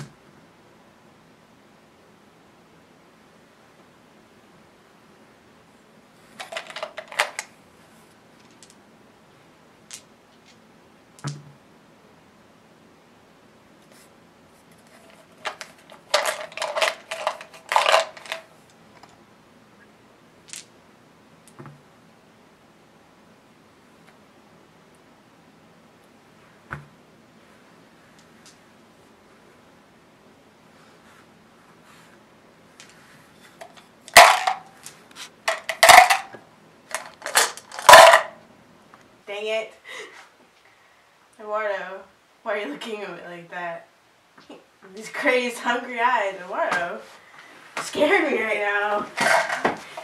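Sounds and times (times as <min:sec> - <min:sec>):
dice rattling in cardboard cup: 0:06.4 - 0:07.5, 0:14.9 - 0:18.5, 0:33.6 - 0:36.3, 0:36.9 - 0:38.3.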